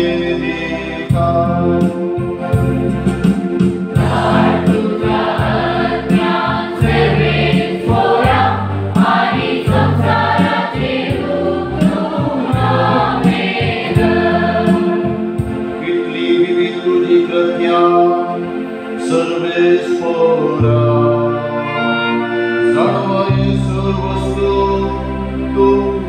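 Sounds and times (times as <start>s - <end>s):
electronic organ bass notes: 0.0s - 26.0s
choir singing a hymn: 3.9s - 18.5s, 19.1s - 24.8s.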